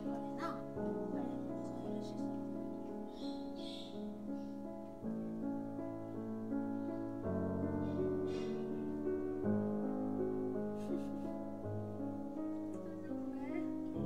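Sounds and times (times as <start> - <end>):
slow piano chords: 0.0 - 14.0.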